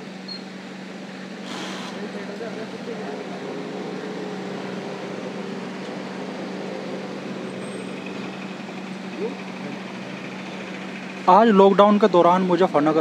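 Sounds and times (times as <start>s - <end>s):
electric pump motor humming: 0.0s - 13.0s
mist spraying hiss: 1.4s - 2.1s.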